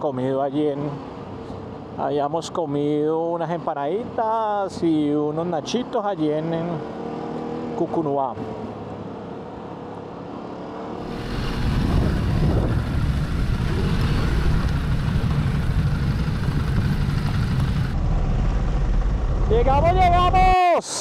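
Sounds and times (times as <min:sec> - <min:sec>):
wind noise on microphone: 0:11.0 - 0:18.5
motorcycle engine rumble: 0:11.0 - 0:20.4.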